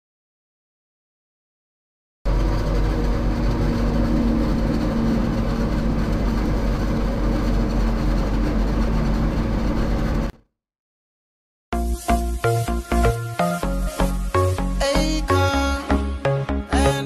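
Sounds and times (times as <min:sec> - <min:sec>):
forage harvester machine drone: 0:02.3 - 0:10.4, 0:11.8 - 0:16.7.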